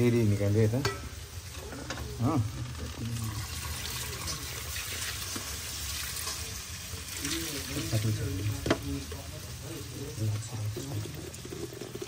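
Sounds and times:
water pouring into colander: 0:02.7 - 0:08.4, 0:09.9 - 0:12.0.

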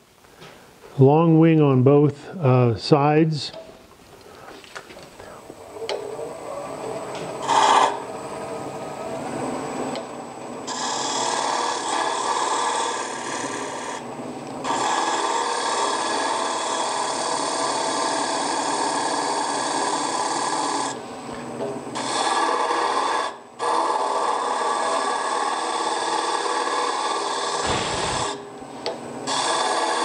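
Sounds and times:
gouge shaving wood on lathe: 0:06.1 - 0:08.9, 0:10.7 - 0:21.0, 0:22.0 - 0:28.4, 0:29.3 - 0:30.0.

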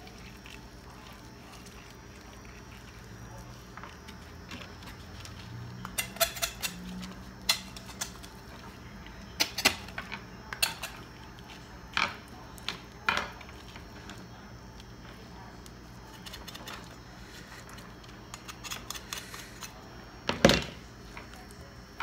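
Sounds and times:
knife scraping: 0:05.8 - 0:08.3, 0:16.1 - 0:19.8.

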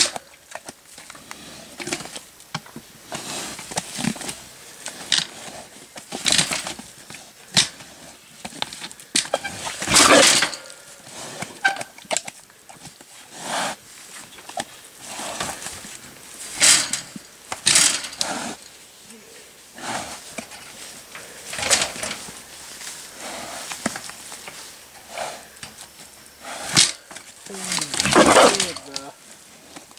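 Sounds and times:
pig moving in wire cage: 0:03.1 - 0:13.0, 0:14.2 - 0:18.8, 0:20.0 - 0:25.8, 0:26.6 - 0:29.2.

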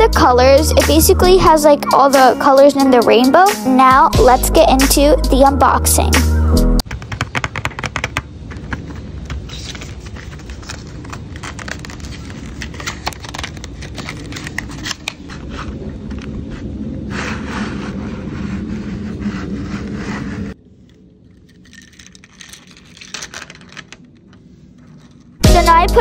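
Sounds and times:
paperboard scraping: 0:06.8 - 0:21.0.

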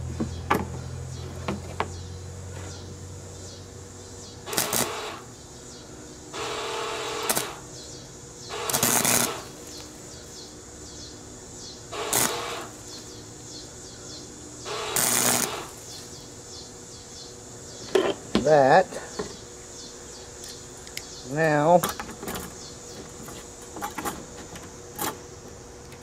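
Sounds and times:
welder arc crackling: 0:04.4 - 0:05.4, 0:06.4 - 0:07.8, 0:08.5 - 0:10.1, 0:11.9 - 0:13.1, 0:14.6 - 0:16.2.

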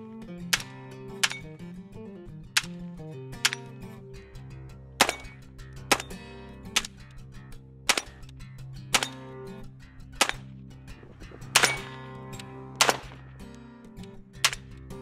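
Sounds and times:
rifle gunshots: 0:11.6 - 0:12.0, 0:12.8 - 0:13.2.

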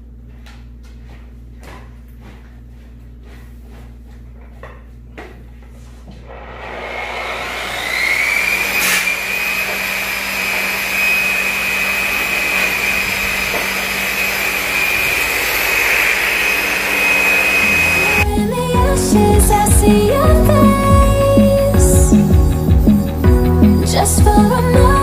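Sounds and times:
power buffer motor whining: 0:06.3 - 0:18.7
music: 0:17.9 - 0:25.0.

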